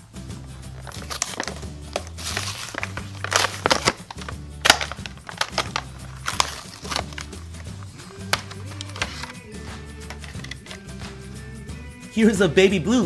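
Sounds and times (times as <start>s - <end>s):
background music: 0.0s - 13.0s
plastic packaging crinkling: 0.4s - 10.8s
paper card tearing: 0.6s - 10.8s.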